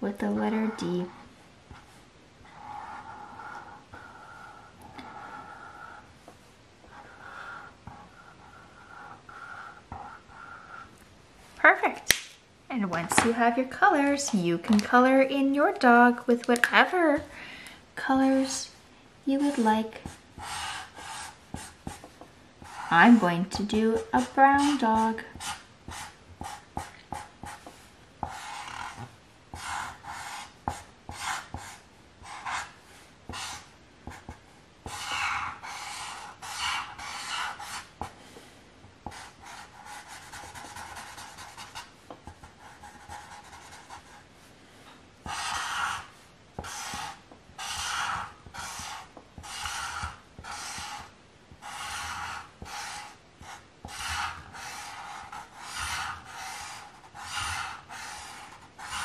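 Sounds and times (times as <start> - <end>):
felt-tip marker rubbing on paper: 22.6 - 32.7, 45.2 - 59.0.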